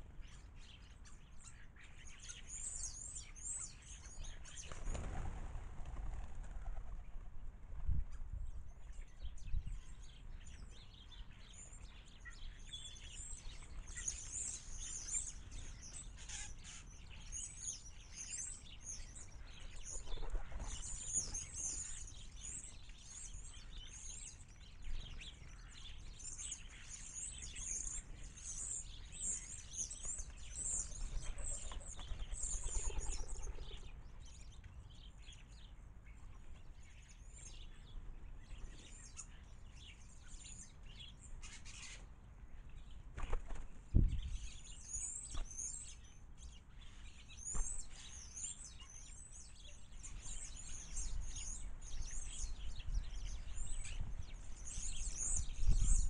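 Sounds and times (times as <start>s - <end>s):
sparrows chirping: 0.0s - 5.2s, 8.0s - 56.0s
rustle: 0.0s - 56.0s.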